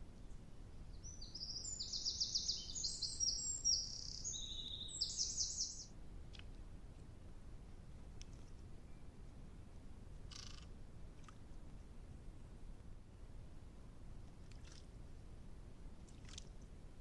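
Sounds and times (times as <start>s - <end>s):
songbird singing trilled phrases: 0.2s - 5.9s.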